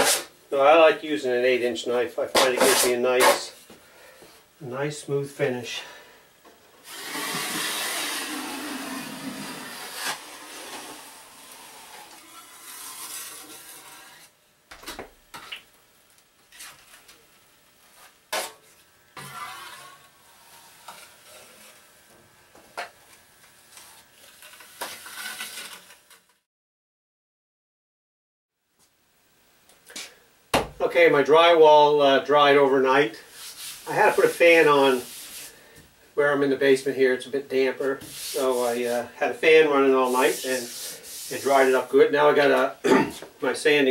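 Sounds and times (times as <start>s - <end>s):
drywall knife scraping compound: 0.0s - 0.3s, 2.2s - 3.6s, 6.8s - 14.4s, 18.0s - 21.9s, 23.7s - 26.3s, 33.2s - 35.7s, 37.8s - 43.3s.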